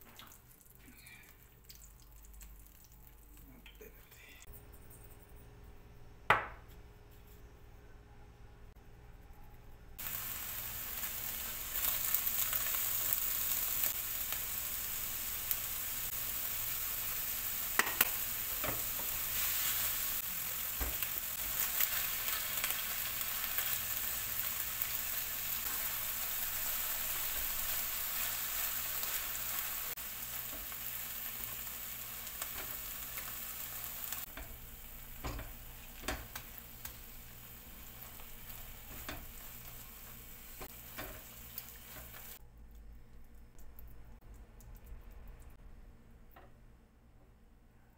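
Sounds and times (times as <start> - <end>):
food sizzling in a frying pan: 10.0 - 42.4.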